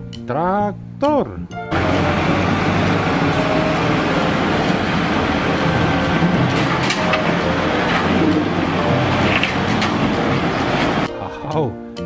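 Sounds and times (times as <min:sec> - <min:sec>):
wheel loader diesel engine: 0:01.7 - 0:11.1.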